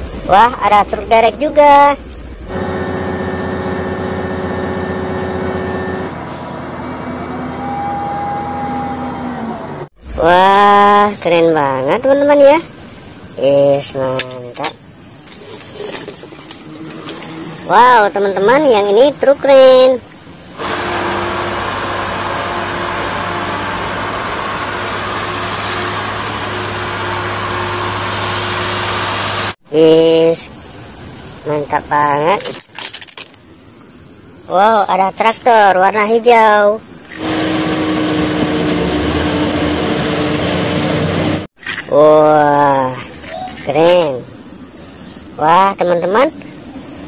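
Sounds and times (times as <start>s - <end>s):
crane engine running: 2.0s - 10.0s, 20.2s - 29.6s, 37.0s - 41.5s.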